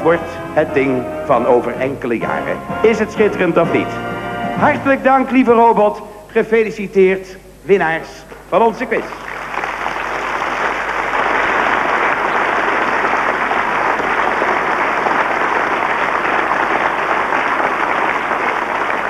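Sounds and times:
audience applauding: 8.9 - 19.0.

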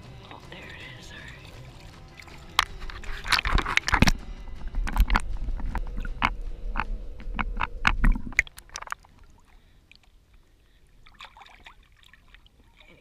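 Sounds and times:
underwater sloshing rumble: 0.4 - 13.0
bubble clicks and knocks: 2.5 - 9.0.

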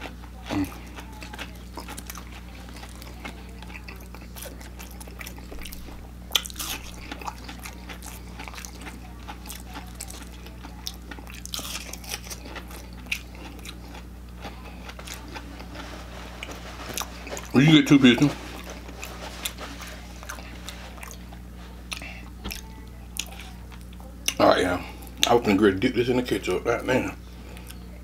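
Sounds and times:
crunchy chewing: 0.0 - 25.4
faint low hum: 0.0 - 28.0.

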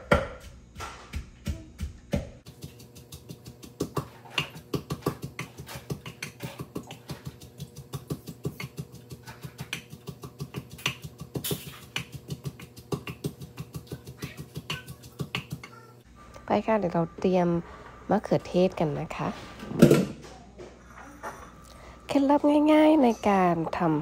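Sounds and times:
wooden pestle pounding in mortar: 0.0 - 15.8.

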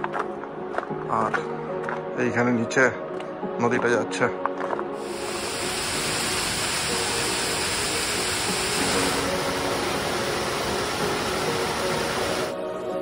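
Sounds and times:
quiet background music: 0.0 - 13.0
river water rushing: 5.0 - 12.6.

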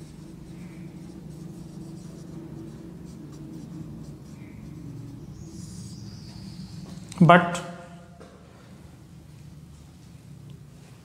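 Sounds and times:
marker writing on whiteboard: 0.0 - 7.2.

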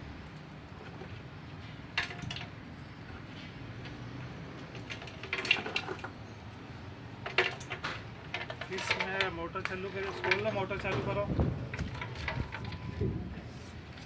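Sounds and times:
stones rattling in metal tank: 2.0 - 2.5, 4.8 - 6.1, 7.2 - 13.2.

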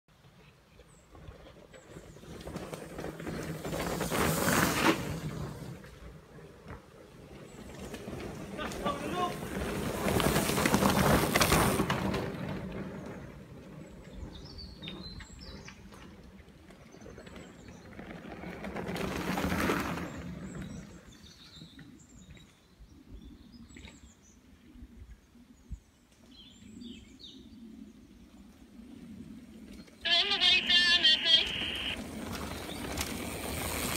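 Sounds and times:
bike tyres rolling over leaves: 1.1 - 21.7, 28.9 - 33.9
birds chirping: 29.7 - 33.7.

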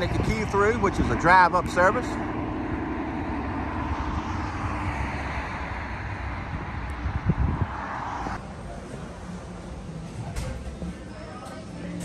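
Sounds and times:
wind rumbling on microphone: 0.0 - 8.4
passing and idling cars: 0.0 - 12.0.

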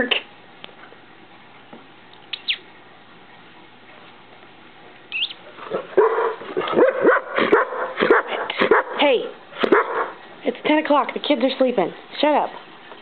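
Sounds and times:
dog barking and yowling: 5.7 - 10.2.

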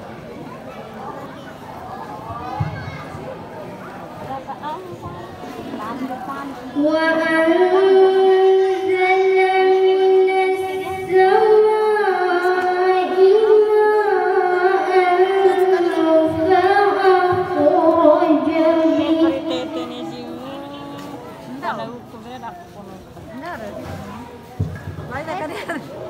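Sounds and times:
woman chanting melodic recitation: 5.8 - 22.4.

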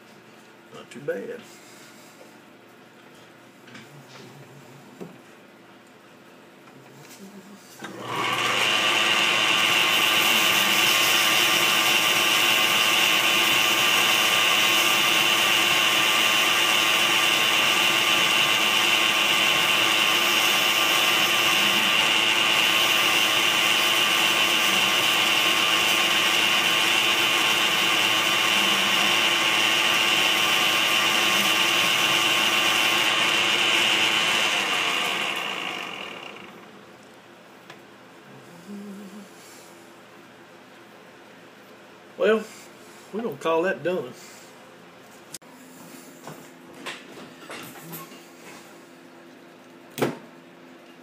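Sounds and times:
metal lathe running: 7.9 - 36.6.

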